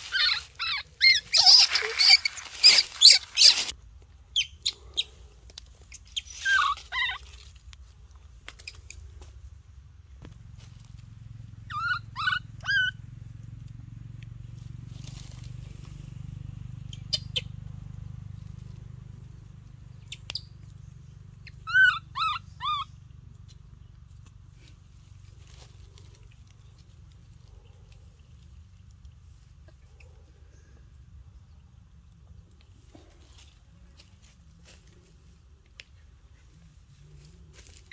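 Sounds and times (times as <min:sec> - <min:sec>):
baby monkey squeaky calls: 0:00.0 - 0:03.7, 0:05.9 - 0:07.4, 0:11.6 - 0:13.0, 0:16.9 - 0:17.5, 0:21.4 - 0:23.0.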